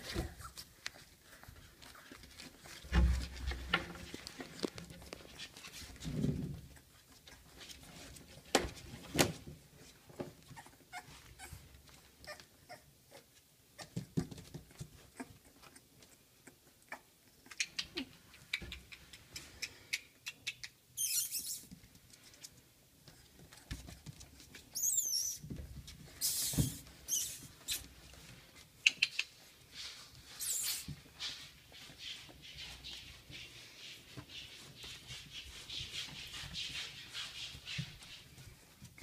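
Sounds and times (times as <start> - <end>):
rustling: 0.0 - 12.6, 21.0 - 39.0
puppy squeak: 20.5 - 21.7, 24.7 - 25.4, 26.2 - 27.9, 30.4 - 30.9.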